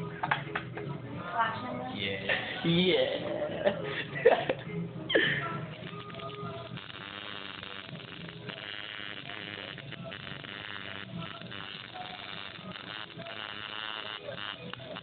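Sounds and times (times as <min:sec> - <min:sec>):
tattoo machine buzzing: 0:05.7 - 0:15.0.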